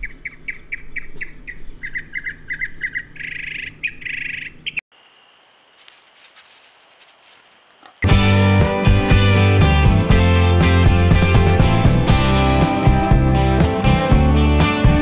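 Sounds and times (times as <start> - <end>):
bird chirping and trilling: 0.0 - 5.4.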